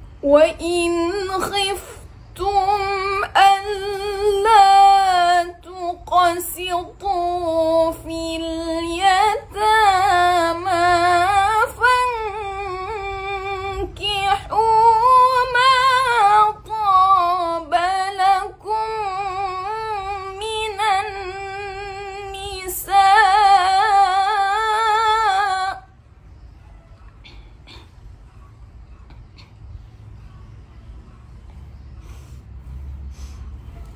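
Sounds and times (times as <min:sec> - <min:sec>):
woman reciting melodically: 0:00.0 - 0:26.1.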